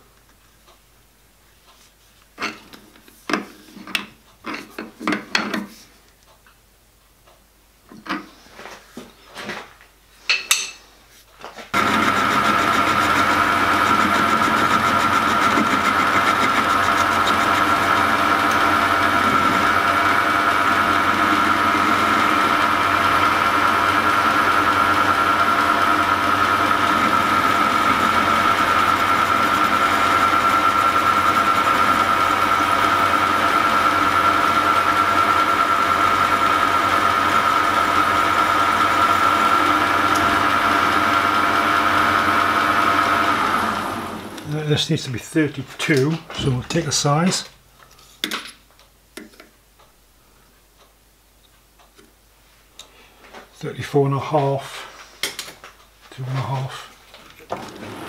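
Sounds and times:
metal lathe running: 11.8s - 44.5s.

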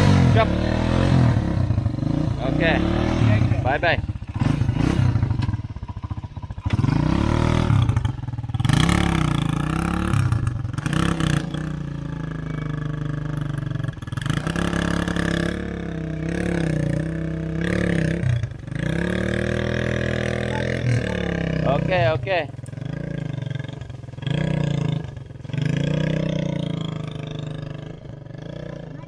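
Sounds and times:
small motorcycle engine revving: 0.0s - 29.0s.

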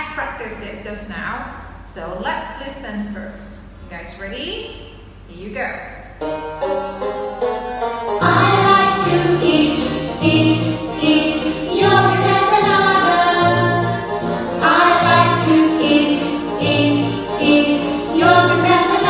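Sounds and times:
bouncy backing music with bass: 6.2s - 19.0s
woman singing: 8.3s - 19.0s.

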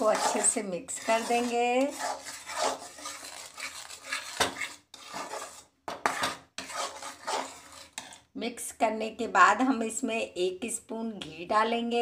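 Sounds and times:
metal spatula scraping pan: 0.0s - 8.3s.

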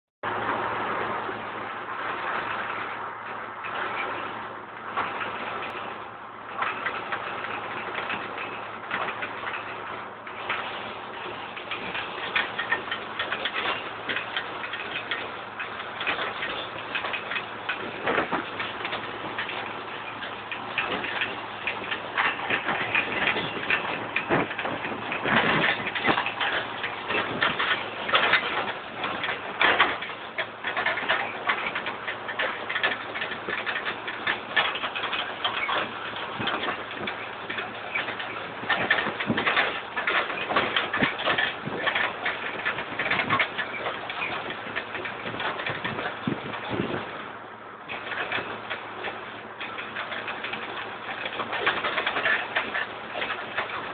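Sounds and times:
dense rushing noise: 0.2s - 30.0s
combine harvester engine drone: 0.3s - 53.9s
tractor rattles and clicks: 0.3s - 53.9s.

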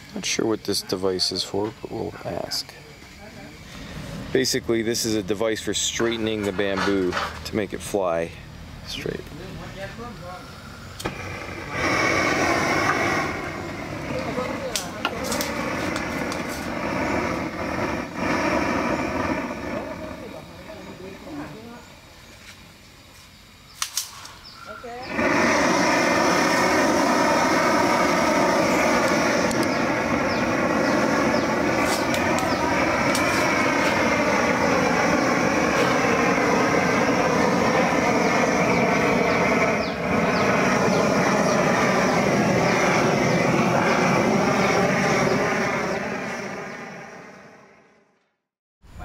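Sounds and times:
gas torch roaring: 0.0s - 48.2s
gas torch igniting click: 10.9s - 20.3s, 23.7s - 46.0s.

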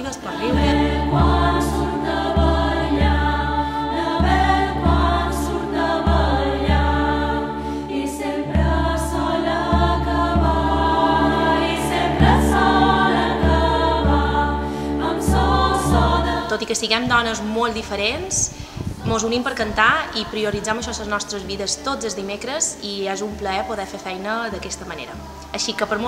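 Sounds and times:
percussion beat: 0.0s - 18.3s, 19.0s - 26.0s
low cello notes: 0.0s - 26.0s
women's choir singing: 0.0s - 26.0s.

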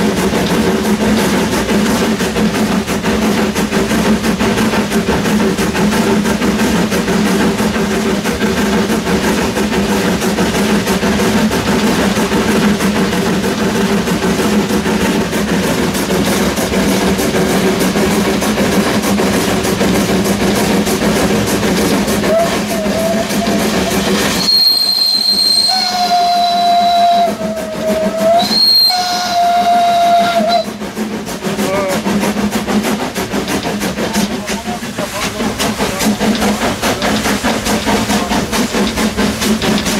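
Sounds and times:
steam locomotive clattering: 0.0s - 39.9s
steam whistle blasts: 22.3s - 30.8s.

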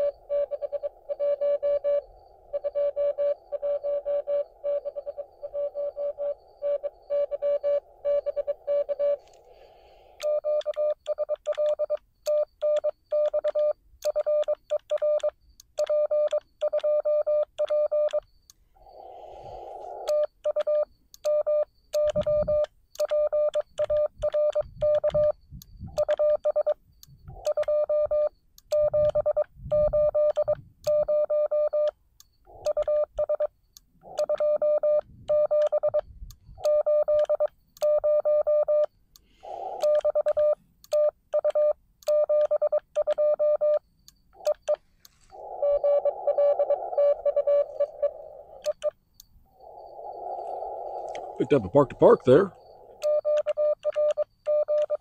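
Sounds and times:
morse code tone: 0.0s - 9.4s, 27.4s - 31.9s, 34.1s - 36.0s, 39.6s - 43.8s, 44.4s - 48.9s, 49.6s - 55.0s
radio static bursts: 45.2s - 48.8s, 49.6s - 53.3s.

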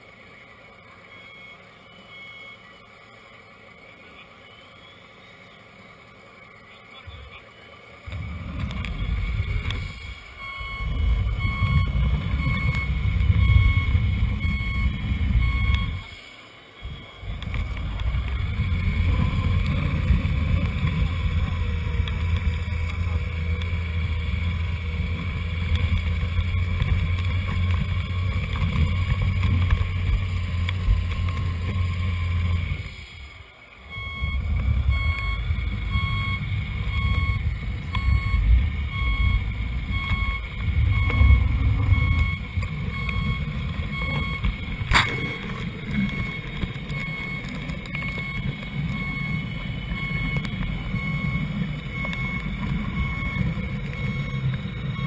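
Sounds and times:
reversing beeper: 0.0s - 55.0s
simulated diesel engine rumble: 0.0s - 55.0s
sharp click: 44.9s - 45.7s.

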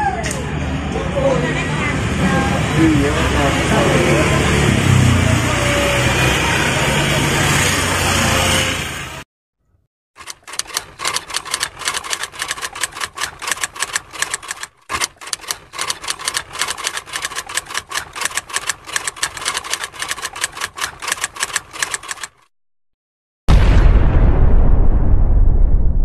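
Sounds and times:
typewriter keys clacking: 10.2s - 22.5s.

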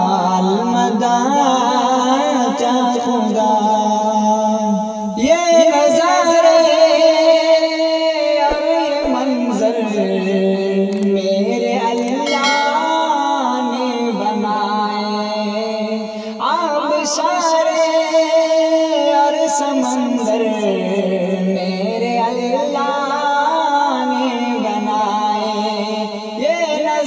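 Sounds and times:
man singing devotional song: 0.0s - 27.0s.

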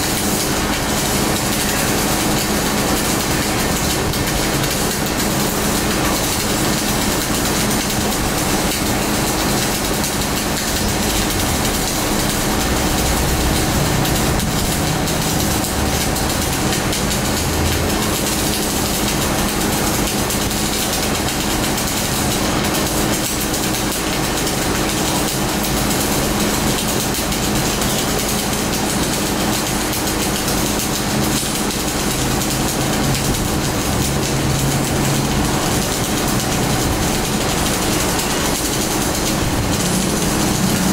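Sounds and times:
arc welding noise: 0.0s - 40.9s
welding equipment low hum: 0.0s - 40.9s.

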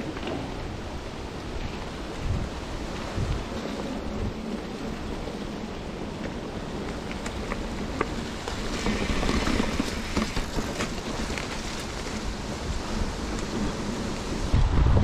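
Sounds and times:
bike tyres on leafy dirt trail: 0.0s - 14.7s
wind on microphone: 0.0s - 15.0s
bike knocking and rattling: 6.0s - 14.5s.

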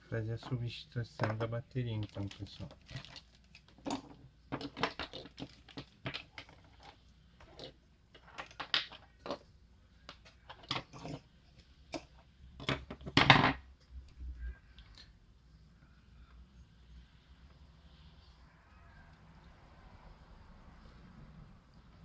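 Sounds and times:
plastic parts clicking and tapping: 0.4s - 7.0s
parts clattering on a tabletop: 3.6s - 9.5s, 10.1s - 11.3s, 11.9s - 13.7s.

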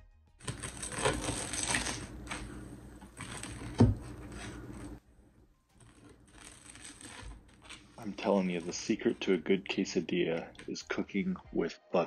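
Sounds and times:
knife cutting crispy tortilla: 0.4s - 4.9s, 5.8s - 9.4s.

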